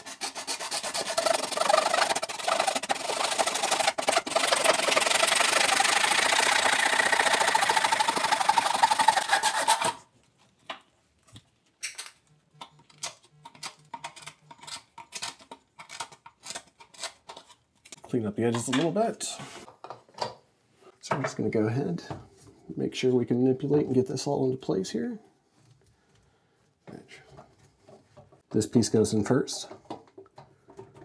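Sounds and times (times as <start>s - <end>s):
blade scraping cut edge: 0.0s - 10.0s
saw rasping through plastic pipe: 0.0s - 10.0s.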